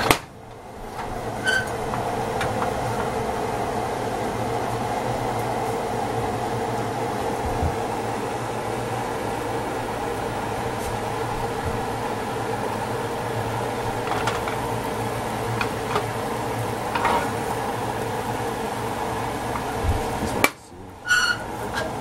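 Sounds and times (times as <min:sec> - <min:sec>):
omelette sizzling in a pan: 0:09.7 - 0:19.8.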